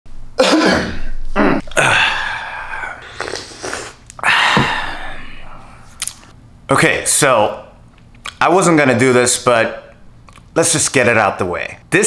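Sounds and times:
man groaning and exhaling: 0.4 - 5.9.

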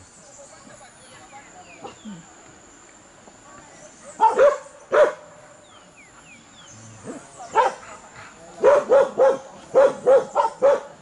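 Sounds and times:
dog barking: 4.2 - 5.3, 7.1 - 7.8, 8.6 - 11.0.

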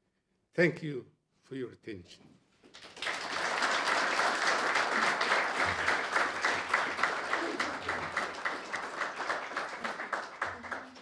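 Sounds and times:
audience applauding: 2.7 - 11.0.

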